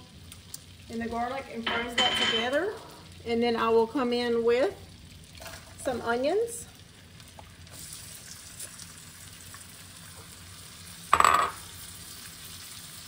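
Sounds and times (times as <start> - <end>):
garlic sizzling in a saucepan: 0.0 - 13.0.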